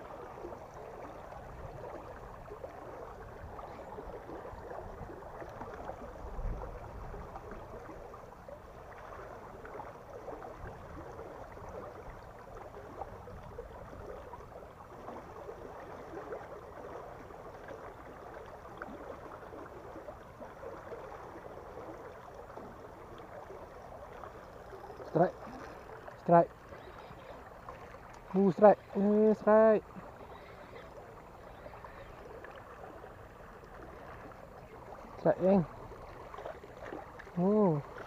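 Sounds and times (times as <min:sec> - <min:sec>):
water rushing through sluice gate: 0:25.0 - 0:32.6, 0:34.7 - 0:38.0.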